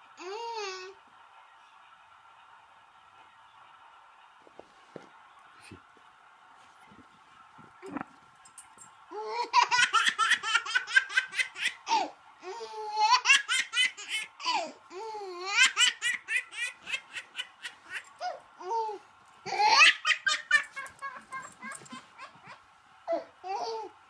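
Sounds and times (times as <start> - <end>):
baby laughing: 9.1 - 24.0.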